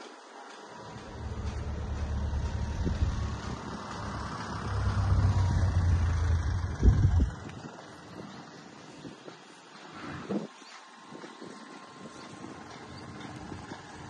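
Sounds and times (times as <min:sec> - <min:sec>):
engine rumbling: 0:00.0 - 0:09.9.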